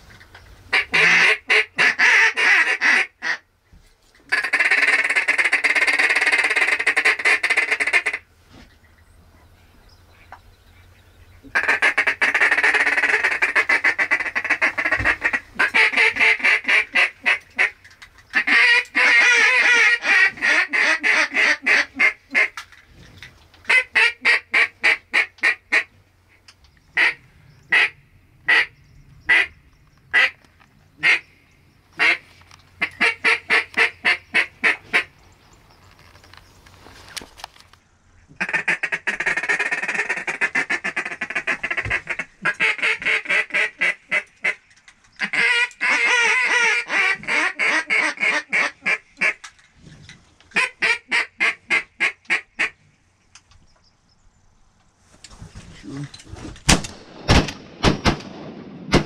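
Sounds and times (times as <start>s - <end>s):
duck call quacking: 0.7s - 3.4s, 4.3s - 8.2s, 11.5s - 17.8s, 18.4s - 22.6s, 23.7s - 25.9s, 27.0s - 28.7s, 30.1s - 30.4s, 31.0s - 31.2s, 32.0s - 35.1s, 38.4s - 44.6s, 45.2s - 49.4s, 50.5s - 52.8s.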